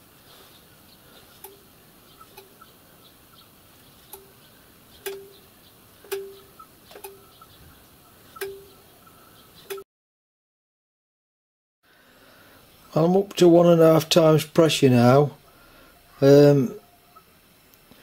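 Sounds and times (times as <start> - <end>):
hand pump metallic clicks: 1.4 - 1.7, 2.3 - 2.6, 4.1 - 4.4, 5.0 - 5.4, 6.0 - 7.2, 8.4 - 8.7.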